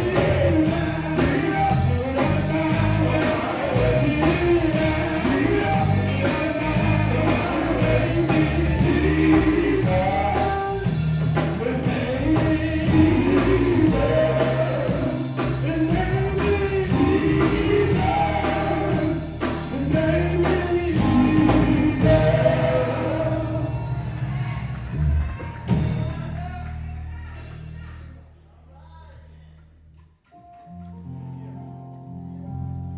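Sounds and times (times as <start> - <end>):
male voices singing in harmony: 0.0 - 24.2
band playing: 0.0 - 28.1.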